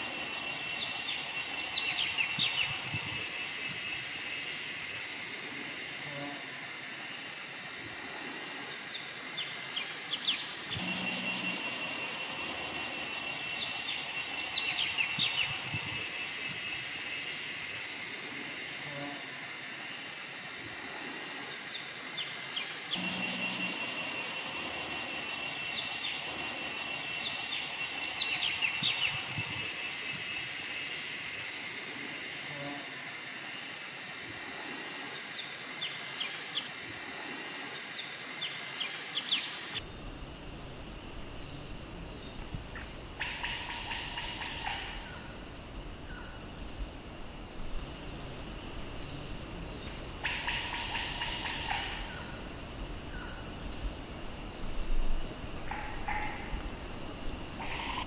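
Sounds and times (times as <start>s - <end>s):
high-pitched insect drone: 0.0s - 58.0s.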